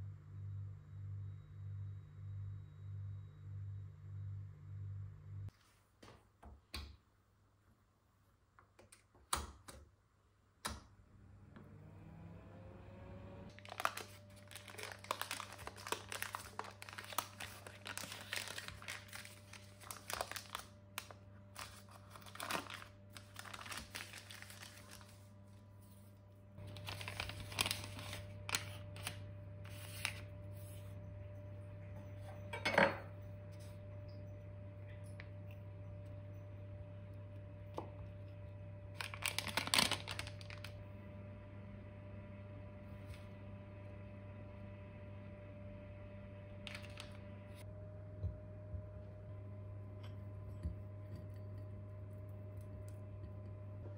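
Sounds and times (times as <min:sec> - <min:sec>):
foil wrapper crinkling: 0:13.5 - 0:25.4, 0:26.6 - 0:30.3, 0:39.0 - 0:40.8, 0:46.6 - 0:47.2.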